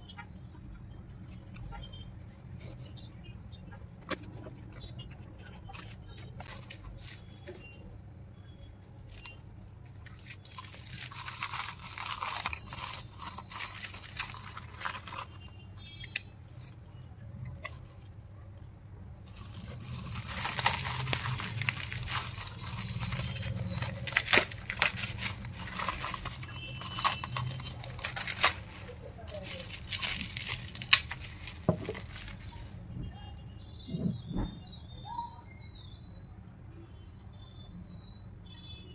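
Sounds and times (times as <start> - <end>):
bubble wrap crinkling: 4.1 - 7.6, 8.9 - 18.1, 19.2 - 32.9.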